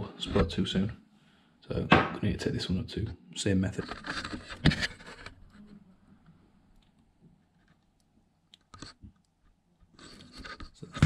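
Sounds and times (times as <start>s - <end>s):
camera handling rustle: 3.8s - 5.6s
scrape and knock: 3.8s - 5.8s, 10.0s - 11.0s.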